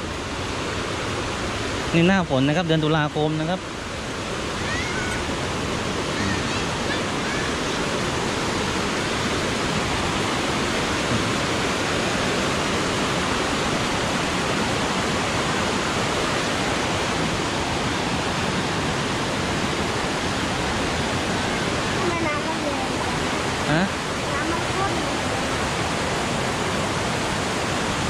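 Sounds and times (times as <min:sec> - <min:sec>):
stream rushing over rocks: 0:00.0 - 0:28.0.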